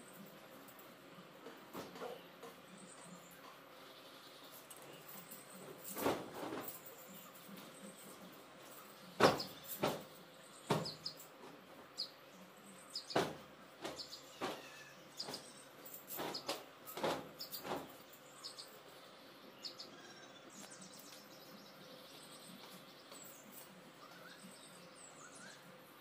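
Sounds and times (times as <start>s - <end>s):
bedding flapping and thumping: 4.8s - 12.0s, 13.1s - 18.2s.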